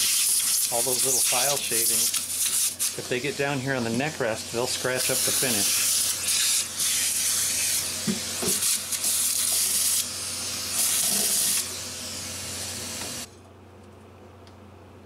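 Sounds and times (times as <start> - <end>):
vacuum nozzle hissing: 4.6 - 13.3.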